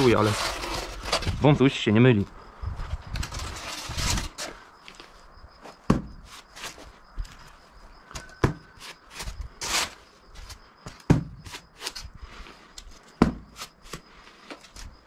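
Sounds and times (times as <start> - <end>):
trowel scraping adhesive on board: 0.0 - 1.4
knocks and scrapes of handling: 0.0 - 1.6, 2.8 - 12.1.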